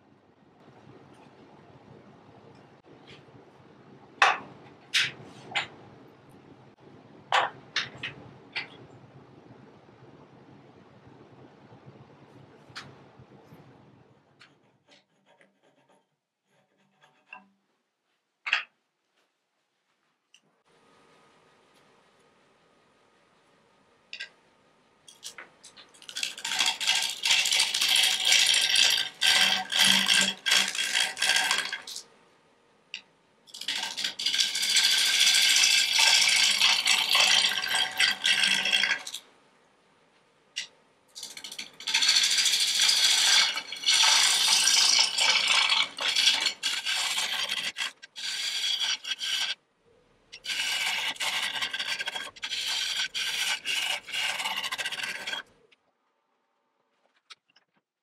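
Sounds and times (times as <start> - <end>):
lathe gouge scraping wood: 26.2 - 31.8, 33.6 - 39.1, 41.4 - 49.6, 50.4 - 55.5.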